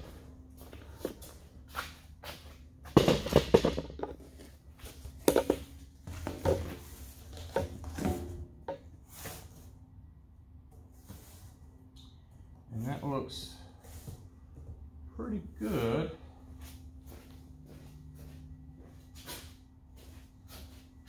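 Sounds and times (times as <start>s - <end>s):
cardboard knocking and scraping on steel: 2.9s - 4.4s
footsteps: 16.5s - 20.9s.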